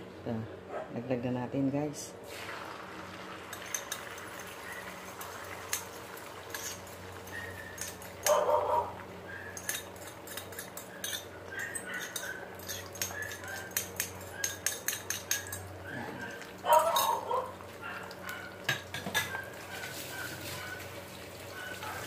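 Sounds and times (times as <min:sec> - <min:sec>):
utensil clinking on frying pan: 0:03.5 - 0:08.4, 0:09.6 - 0:15.7.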